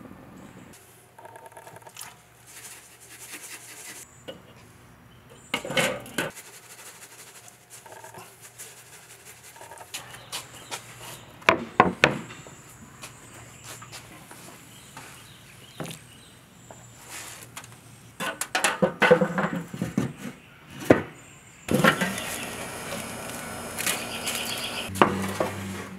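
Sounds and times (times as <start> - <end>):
grill lid clanking: 21.7 - 23.0.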